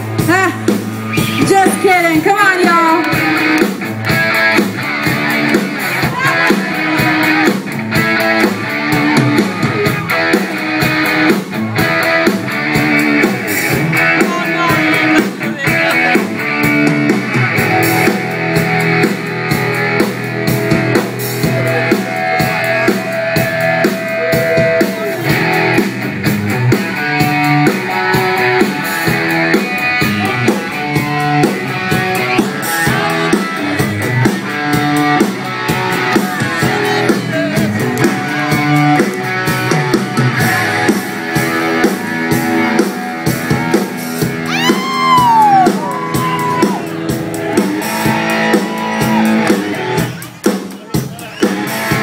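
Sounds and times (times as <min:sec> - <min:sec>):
bass guitar: 0:00.0 - 0:52.0
drum kit: 0:00.0 - 0:52.0
electric guitar riffing: 0:00.0 - 0:52.0.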